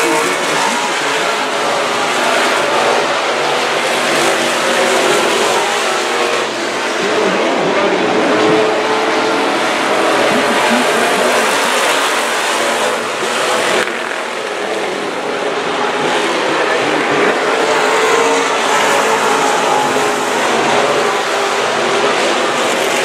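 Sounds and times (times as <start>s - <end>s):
stock car engines racing: 0.0s - 23.0s.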